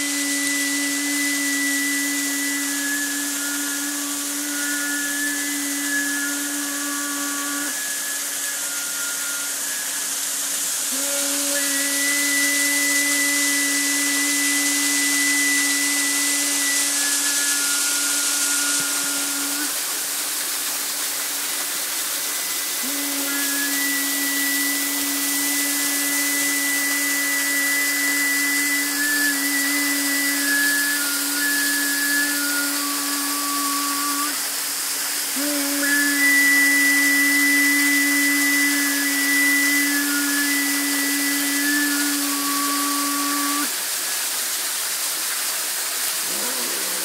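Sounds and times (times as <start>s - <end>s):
slow music with low drone: 0.0s - 19.7s.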